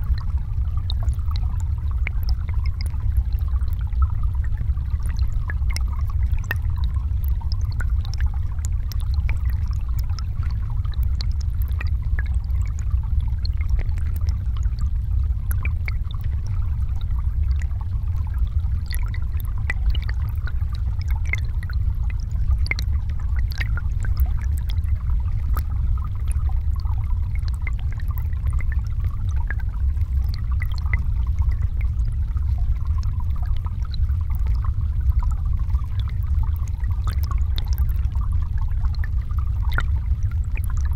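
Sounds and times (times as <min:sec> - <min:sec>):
small underwater clicks: 0:00.0 - 0:40.9
underwater river rumble: 0:00.0 - 0:40.9.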